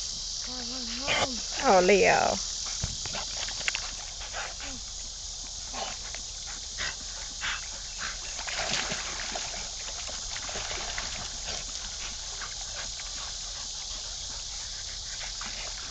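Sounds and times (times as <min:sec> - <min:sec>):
steady high hiss: 0:00.0 - 0:15.9
dogs splashing in water: 0:03.0 - 0:04.9, 0:05.7 - 0:15.9.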